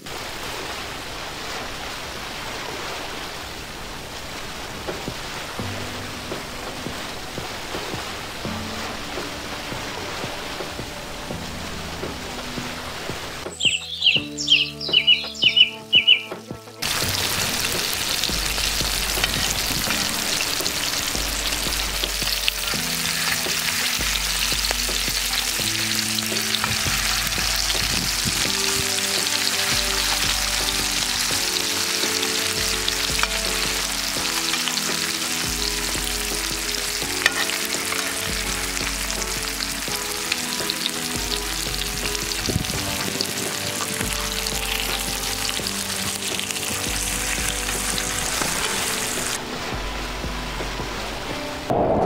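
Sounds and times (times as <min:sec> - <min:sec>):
oil sizzling in pan: 0:16.8 - 0:49.4.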